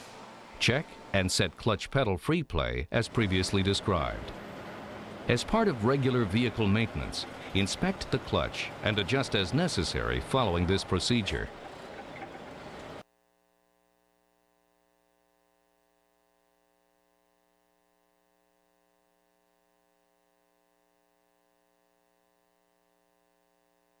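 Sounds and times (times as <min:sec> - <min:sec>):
steady background noise: 0:03.0 - 0:13.0.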